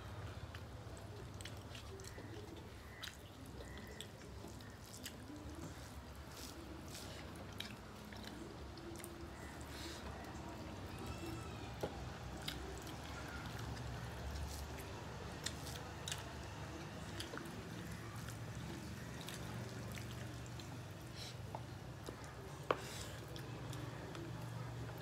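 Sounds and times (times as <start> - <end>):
wet chewing and lip-smacking: 0.1 - 11.0, 11.7 - 25.0
fingers squishing food on plates: 0.1 - 25.0.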